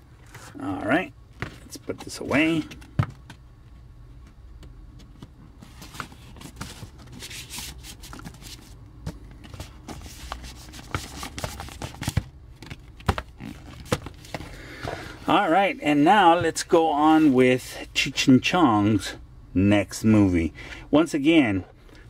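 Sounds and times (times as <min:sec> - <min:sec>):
cardboard and paper rustling: 0:05.0 - 0:15.7.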